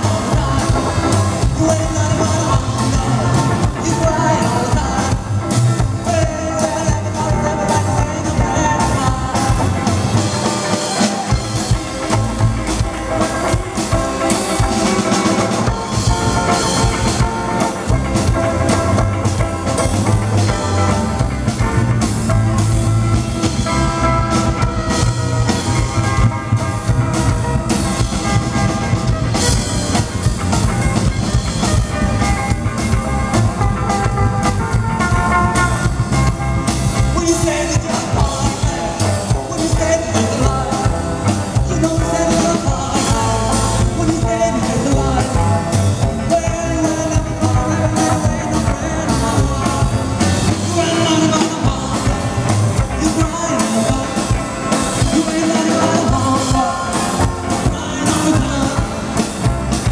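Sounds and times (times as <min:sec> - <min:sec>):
drum kit: 0:00.0 - 0:59.9
electric guitars: 0:00.0 - 0:59.9
upright double bass: 0:00.0 - 0:59.9.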